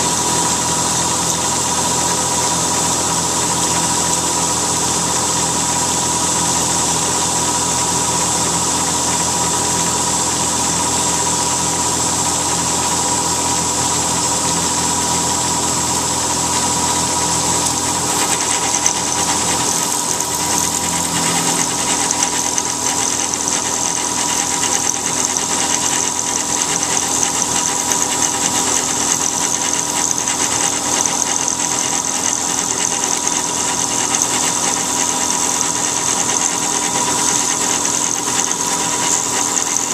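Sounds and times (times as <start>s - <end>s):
metal cutting noise: 0.0s - 39.9s
milling machine spindle whine: 0.0s - 39.9s
low machine hum: 12.5s - 28.2s.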